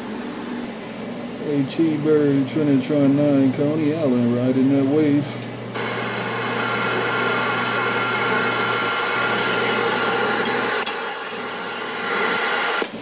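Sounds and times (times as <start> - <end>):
radio static hissing: 0.4 - 13.0
radio clicks: 10.0 - 11.0.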